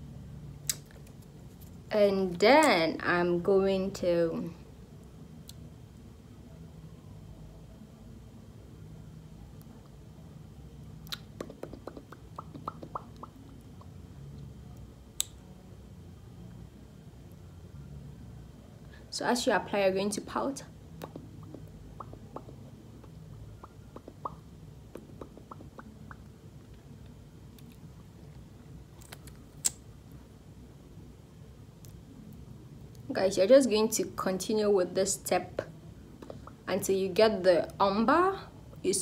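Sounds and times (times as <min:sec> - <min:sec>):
faint low hum: 0:00.0 - 0:39.0
wet lip smacks: 0:11.0 - 0:13.9, 0:21.0 - 0:22.6, 0:23.6 - 0:26.3, 0:29.0 - 0:29.8.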